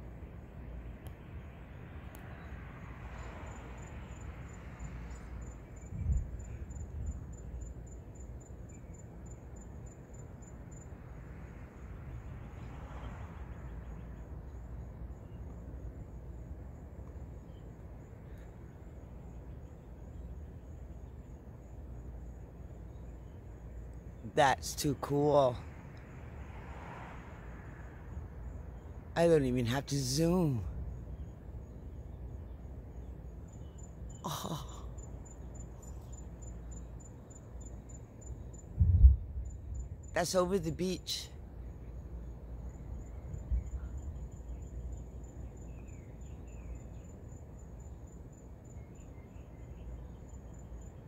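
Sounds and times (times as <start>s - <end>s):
insects chirping: 0.0s - 51.0s
low steady background noise: 0.0s - 51.0s
low rumble with soft hiss: 35.1s - 50.5s.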